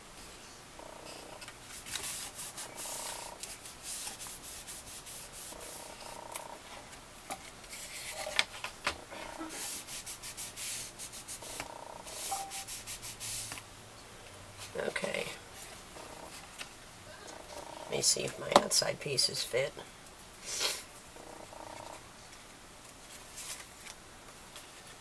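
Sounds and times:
paper tissue rubbing on cardstock: 0:01.2 - 0:06.3, 0:09.4 - 0:13.5.

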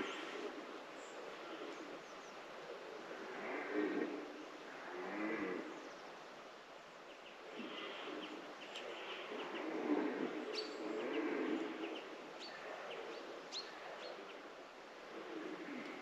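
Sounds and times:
small birds chirping: 0:07.1 - 0:14.2.

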